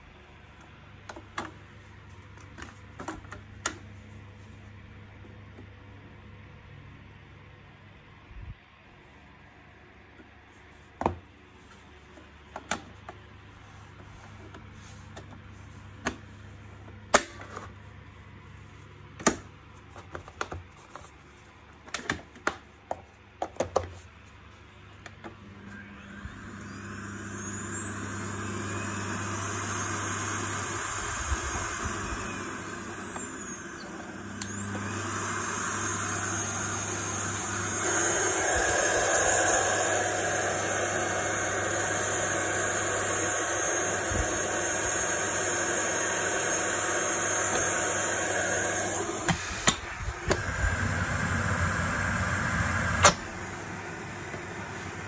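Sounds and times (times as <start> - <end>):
vacuum cleaner motor whine: 25.1 - 55.0.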